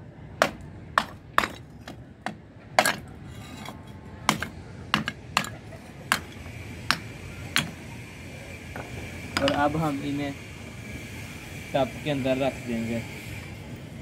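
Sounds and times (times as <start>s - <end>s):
hammer cracking clay pot: 0.4s - 3.1s, 4.3s - 7.8s.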